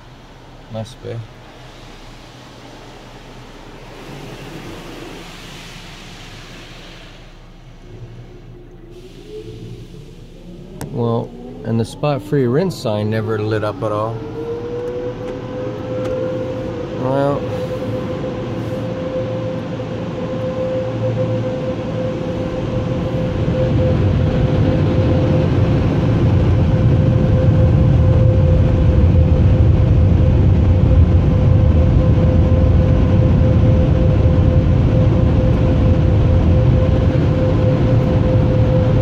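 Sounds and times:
loud rushing air: 0.0 - 15.2
air dryers whine: 0.0 - 39.0.

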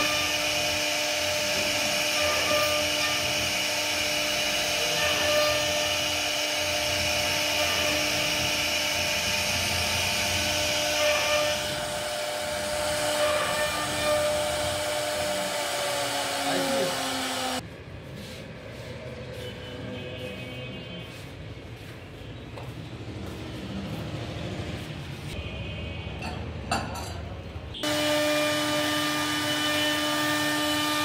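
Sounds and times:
router bit cutting wood: 0.0 - 17.6, 27.8 - 31.0
router spindle whining: 0.0 - 17.6, 27.8 - 31.0.

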